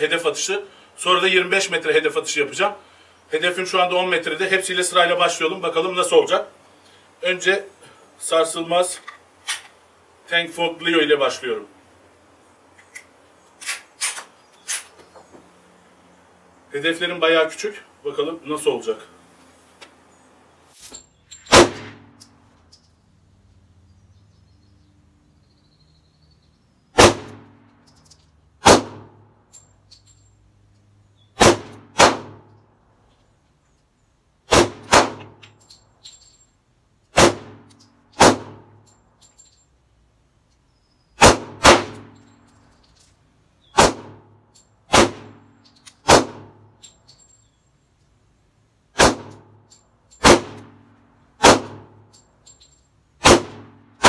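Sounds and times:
pistol shots with echo: 21.5 - 22.1, 27.0 - 27.5, 28.6 - 29.2, 31.4 - 32.5, 34.5 - 35.4, 37.2 - 38.8, 41.2 - 42.2, 43.8 - 44.3, 44.9 - 45.4, 46.0 - 46.7, 49.0 - 49.6, 50.2 - 50.8, 51.4 - 52.0, 53.2 - 53.8.

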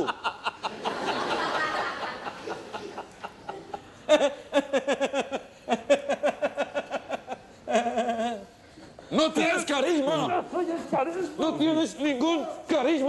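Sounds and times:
man laughing: 0.0 - 8.5.

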